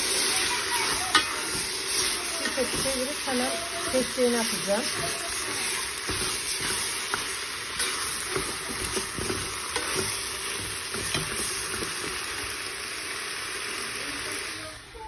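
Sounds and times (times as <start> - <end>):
eggplant sizzling in pot: 0.0 - 15.0
spoon scraping and tapping pot: 6.1 - 11.9.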